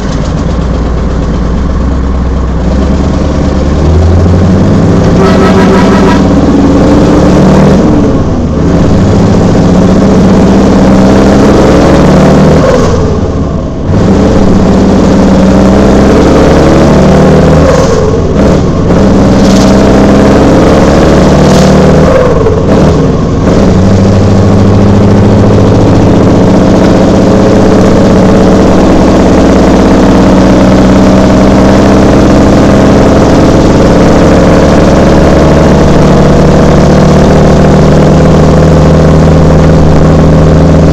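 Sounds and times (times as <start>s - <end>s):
truck engine running under load: 0.0s - 40.9s.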